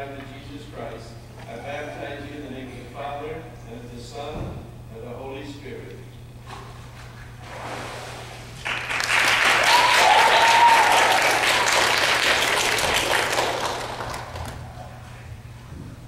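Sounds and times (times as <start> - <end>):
congregation clapping: 8.6 - 14.9.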